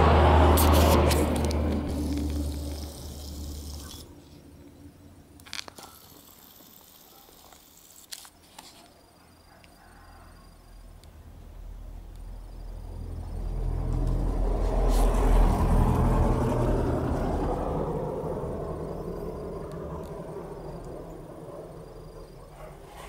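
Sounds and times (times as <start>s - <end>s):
vehicle engine passing by: 0.0s - 5.4s, 11.2s - 23.0s.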